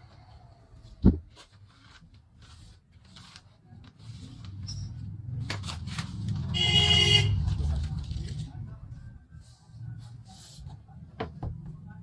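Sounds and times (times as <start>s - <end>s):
paper and plastic rustling: 1.0s - 6.6s, 7.3s - 8.8s.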